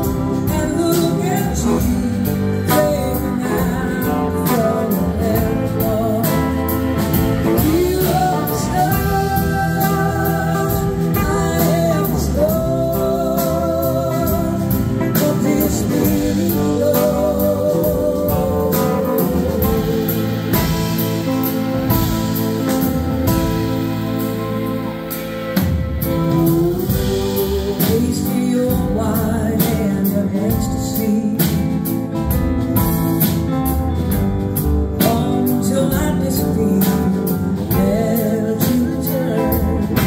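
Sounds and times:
woman singing with vibrato: 0.0s - 24.0s, 26.0s - 32.0s
drums keeping a steady beat: 0.0s - 40.0s
electric guitars: 0.0s - 40.0s
keyboards: 0.0s - 40.0s.

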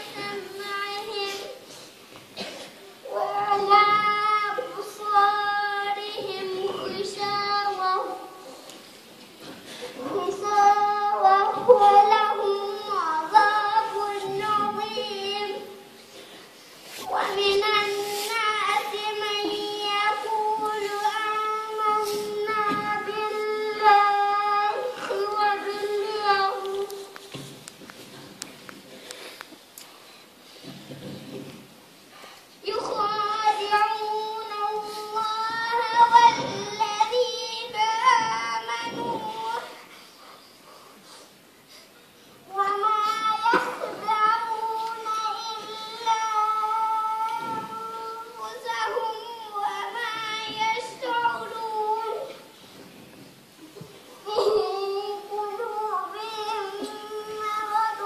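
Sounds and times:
girl singing: 0.0s - 8.8s, 9.9s - 16.4s, 17.0s - 27.4s, 32.6s - 40.0s, 42.4s - 52.7s, 53.8s - 58.0s.

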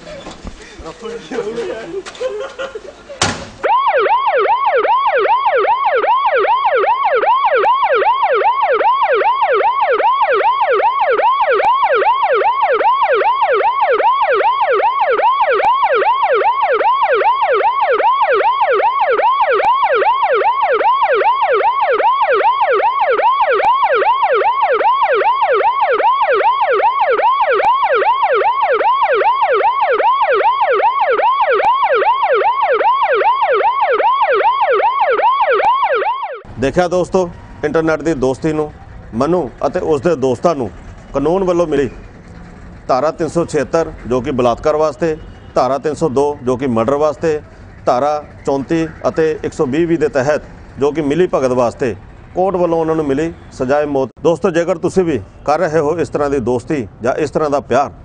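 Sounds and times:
police siren yelping: 3.6s - 53.8s.

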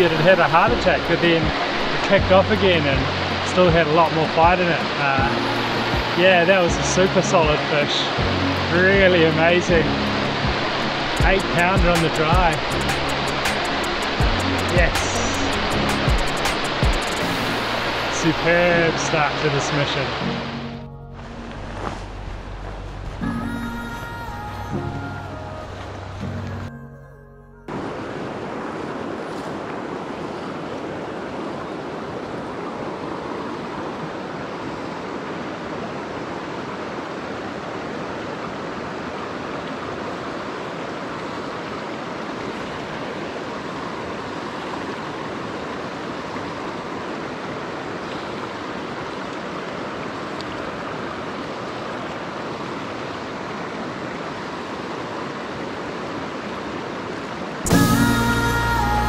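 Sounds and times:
river rushing over stones: 0.0s - 26.7s, 27.7s - 59.0s.

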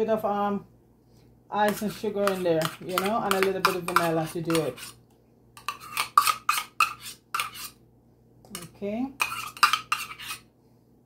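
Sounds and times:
metal cup clinking and scraping: 5.6s - 7.7s, 9.2s - 10.4s.

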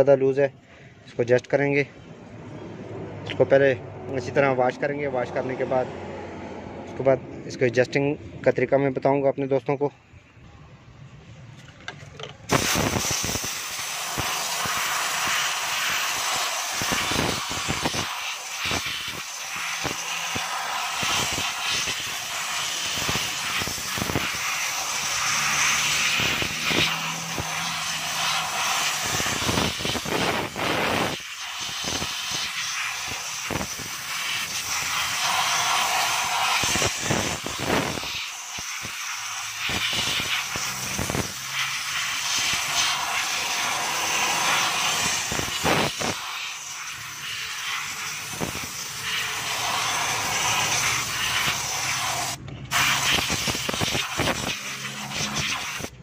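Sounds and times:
spray gun hissing: 12.5s - 56.0s.

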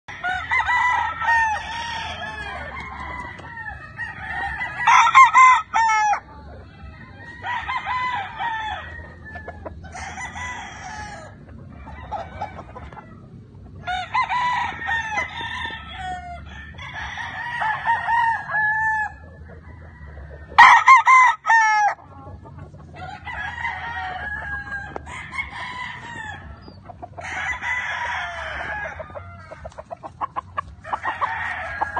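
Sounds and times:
roosters crowing: 0.1s - 31.9s.

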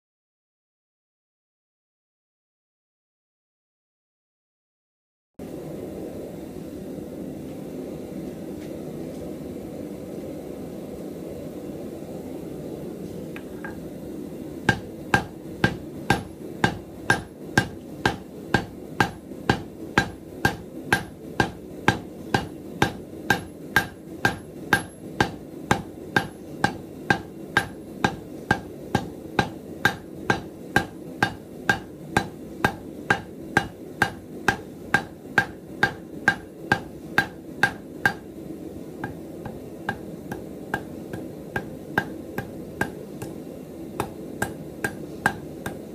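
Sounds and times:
hammer striking steel on anvil: 14.6s - 38.4s, 39.0s - 45.9s.

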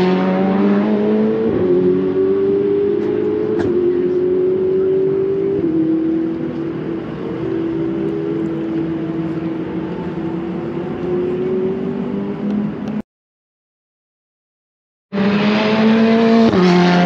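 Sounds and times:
race car engines running: 0.0s - 13.0s.

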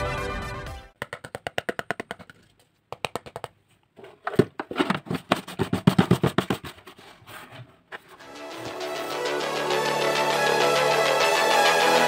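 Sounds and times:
plastic scraping: 4.0s - 8.2s.

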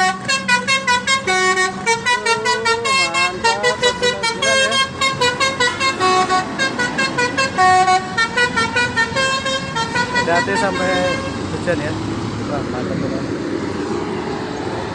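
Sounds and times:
bus horn playing melody: 0.0s - 11.5s.

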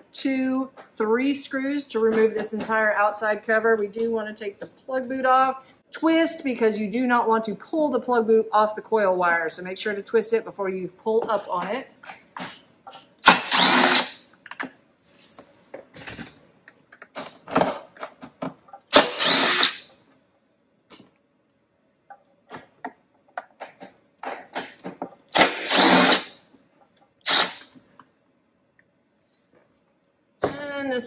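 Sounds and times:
cordless driver spinning: 13.3s - 14.2s, 18.9s - 19.8s, 25.4s - 26.3s, 27.3s - 27.6s.

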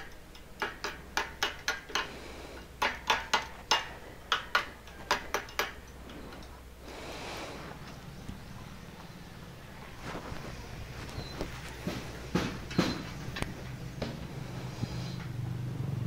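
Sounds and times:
hammer tapping on steel: 0.0s - 6.5s, 11.8s - 14.2s
soft rushing noise: 6.2s - 16.0s.

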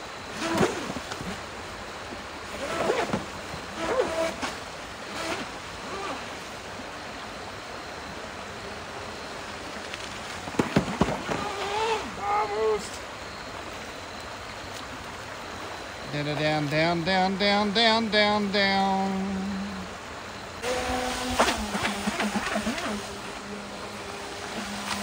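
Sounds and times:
river rapids rushing: 10.3s - 25.0s
rc jet boat spraying water: 20.6s - 25.0s.

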